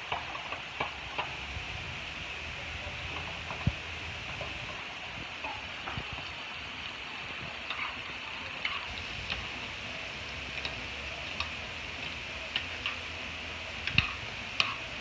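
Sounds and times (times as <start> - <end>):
food sizzling in a metal pan: 0.0 - 15.0
small pops and ticks: 10.6 - 13.0, 13.8 - 14.8.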